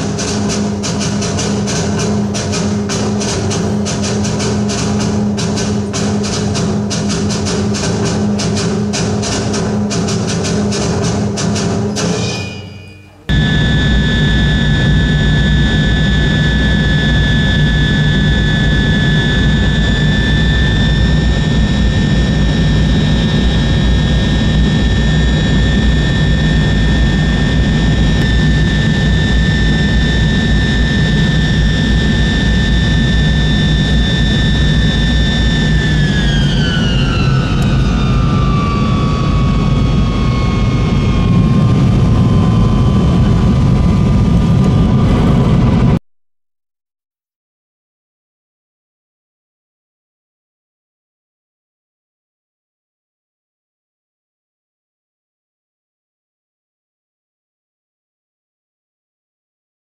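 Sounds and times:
jet engines rumbling and whining: 0.0 - 46.0.

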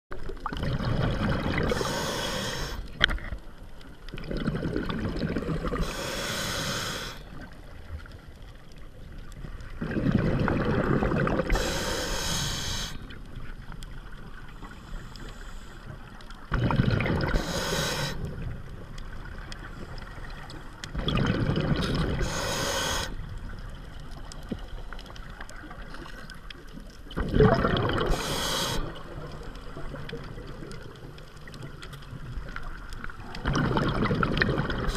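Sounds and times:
underwater noise: 0.1 - 34.9
bubbling exhaled air: 0.4 - 2.9, 4.1 - 7.5, 9.7 - 13.1, 16.4 - 18.5, 20.9 - 23.2, 27.1 - 30.9, 33.2 - 34.9
regulator breathing hiss: 1.7 - 2.9, 5.8 - 7.3, 11.5 - 13.1, 14.7 - 15.9, 17.3 - 18.3, 22.2 - 23.2, 28.1 - 29.0.

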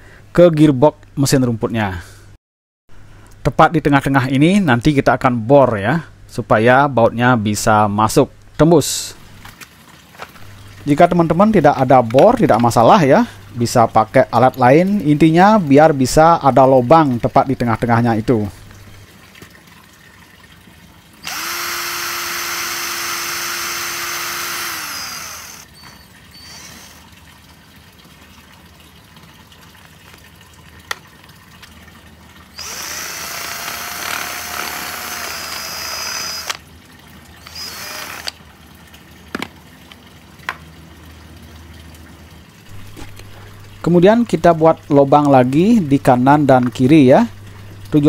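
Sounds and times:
cordless drill boring through plastic: 21.2 - 27.0, 32.6 - 36.6, 37.4 - 38.4.

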